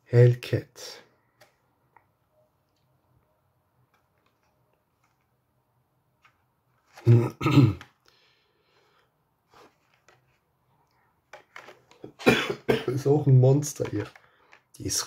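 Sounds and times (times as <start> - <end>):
man clearing his throat: 7.1 - 7.9, 12.1 - 13.0.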